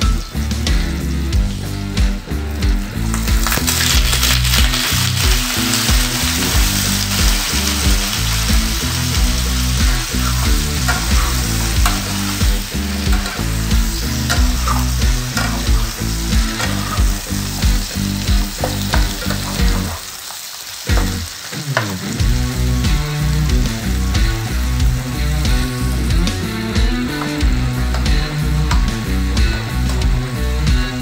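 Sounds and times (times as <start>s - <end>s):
shrimp sizzling in hot oil: 1.9s - 31.0s
spatula clicking and scraping pan: 3.4s - 19.9s.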